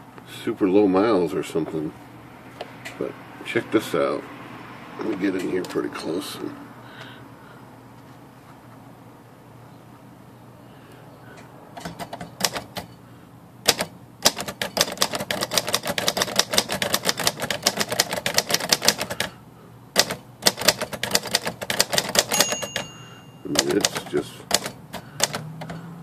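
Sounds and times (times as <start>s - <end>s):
manual typewriter typing: 11.8s - 12.9s, 13.6s - 19.4s, 20.0s - 22.9s, 23.5s - 25.8s.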